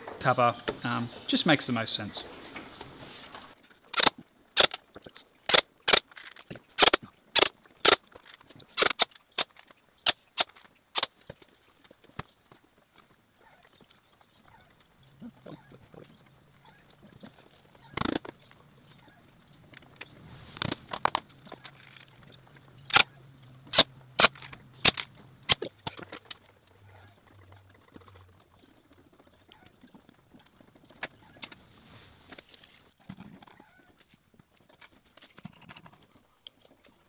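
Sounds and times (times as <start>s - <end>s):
scattered taps and rustling: 19.5s - 23.0s, 23.6s - 31.6s.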